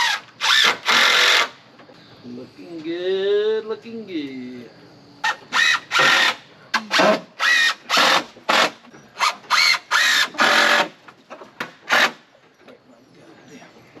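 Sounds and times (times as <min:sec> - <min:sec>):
cordless drill driving screws into wood: 0:00.0 - 0:01.6, 0:05.2 - 0:12.3.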